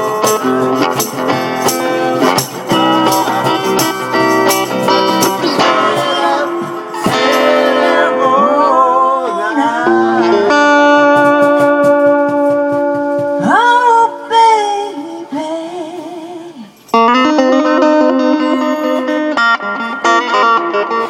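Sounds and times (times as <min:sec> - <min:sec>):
guitar chords: 0:00.0 - 0:21.0
person singing: 0:02.0 - 0:11.6, 0:13.4 - 0:16.8, 0:17.6 - 0:19.5.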